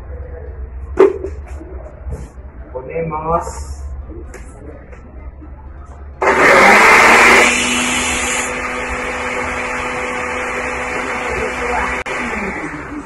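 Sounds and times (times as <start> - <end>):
blender motor whine: 6.2 - 13.0.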